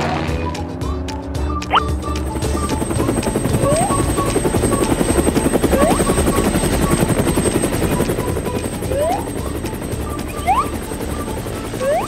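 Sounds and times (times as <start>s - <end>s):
toy helicopter rotor chopping: 2.3s - 12.0s.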